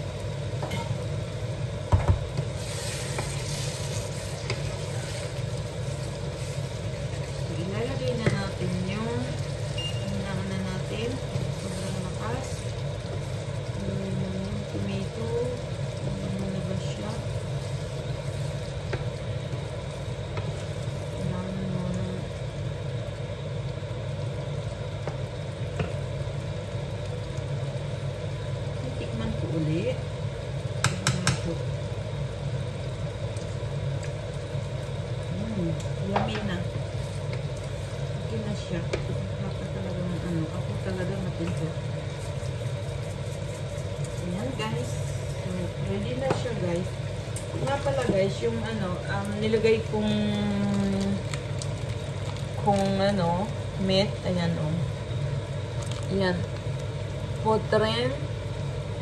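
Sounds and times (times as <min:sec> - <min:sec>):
sauce sizzling in frying pan: 0:00.0 - 0:59.0
steady low hum: 0:00.0 - 0:59.0
wooden spoon knocking on pan: 0:01.9 - 0:02.5, 0:30.8 - 0:31.5
wooden spoon stirring: 0:02.2 - 0:21.9, 0:35.8 - 0:53.4.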